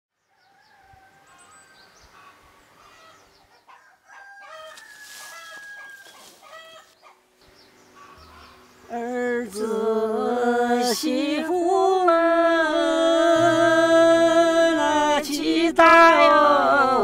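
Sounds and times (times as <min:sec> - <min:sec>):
small birds chirping: 0:00.2 - 0:03.8, 0:06.1 - 0:09.0
rooster crowing: 0:00.3 - 0:02.3, 0:02.9 - 0:06.9.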